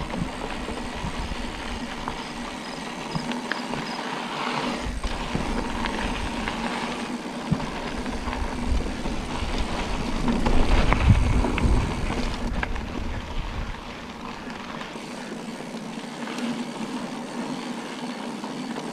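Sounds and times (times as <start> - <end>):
wind buffeting microphone: 0.0 - 3.2, 4.8 - 14.8
tyre noise on dirt: 0.0 - 18.9.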